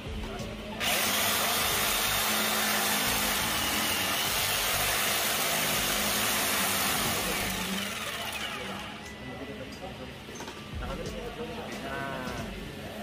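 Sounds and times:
jigsaw cutting wood: 0:00.8 - 0:09.0.

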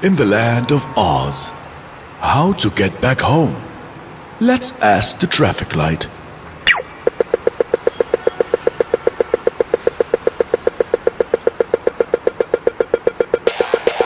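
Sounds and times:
crossing signal ticking rapidly: 0:06.7 - 0:14.0.

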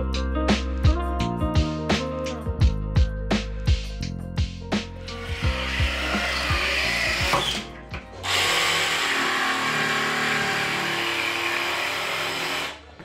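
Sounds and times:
cordless drill with hole saw: 0:05.1 - 0:12.8
jigsaw cutting board: 0:05.2 - 0:07.6, 0:08.2 - 0:13.0.

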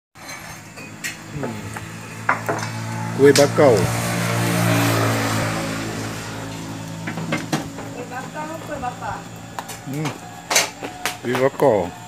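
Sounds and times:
vehicle engine and road noise: 0:00.2 - 0:12.0
faint voices: 0:07.8 - 0:12.0.

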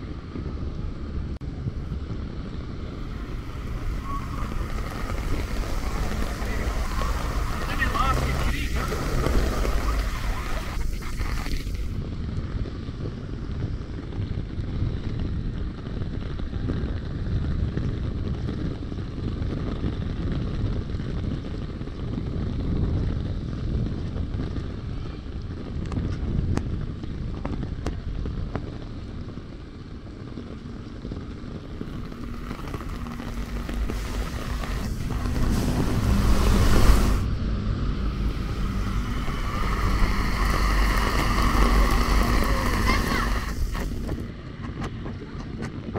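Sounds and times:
traffic hissing on wet street: 0:00.0 - 0:14.0, 0:28.8 - 0:44.7
wind buffeting microphone: 0:00.0 - 0:45.9
heavy rain: 0:01.8 - 0:12.0, 0:30.7 - 0:44.4
bus passing: 0:02.5 - 0:12.0, 0:31.6 - 0:45.0.

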